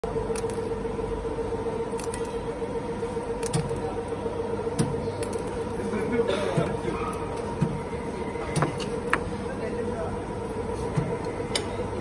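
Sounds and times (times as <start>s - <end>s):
machine humming: 0.0s - 12.0s.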